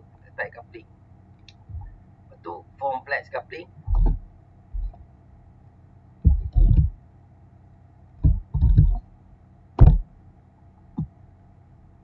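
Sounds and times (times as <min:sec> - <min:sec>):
keyboard keys thumping: 0:03.8 - 0:05.1, 0:06.2 - 0:07.0, 0:08.2 - 0:09.0, 0:09.8 - 0:10.1.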